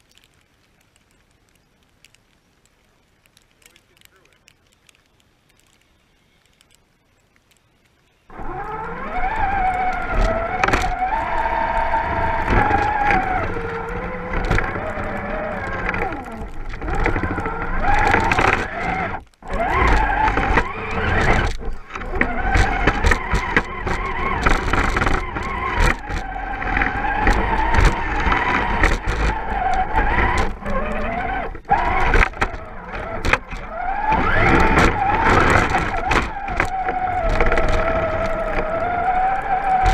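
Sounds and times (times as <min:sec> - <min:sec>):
toy truck motor whining: 0:08.3 - 0:39.9.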